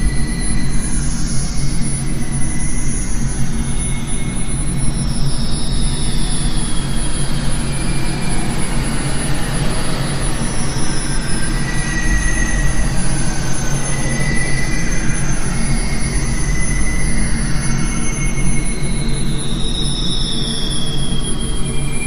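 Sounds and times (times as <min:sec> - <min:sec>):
faint high whistling tones: 0:00.0 - 0:22.0
loud rumbling drone: 0:00.0 - 0:22.0.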